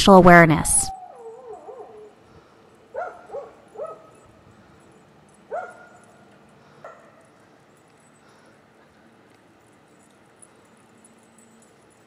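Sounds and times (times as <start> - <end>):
dog yipping barks: 2.9 - 4.3, 5.5 - 6.2.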